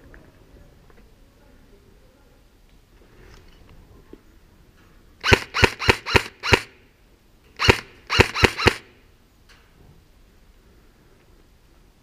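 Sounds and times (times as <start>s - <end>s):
airsoft gun shots: 5.2s - 6.8s, 7.6s - 9.0s.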